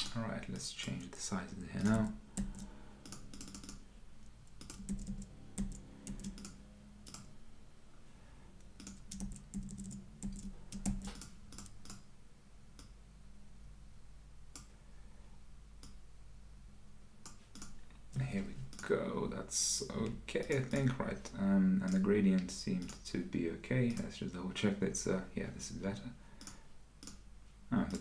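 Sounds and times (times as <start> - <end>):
faint low hum: 0.0 - 28.0
computer keyboard typing: 1.8 - 3.8, 4.4 - 7.3, 8.7 - 12.0, 22.8 - 23.0.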